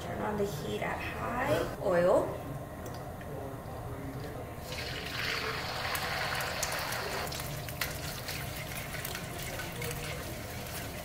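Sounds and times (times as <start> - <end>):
eggs sizzling in hot oil: 4.7 - 11.0.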